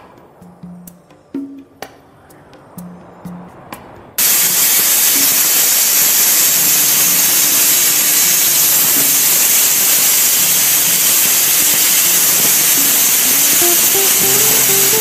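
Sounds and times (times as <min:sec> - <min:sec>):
plasma cutter hissing: 0:04.2 - 0:15.0.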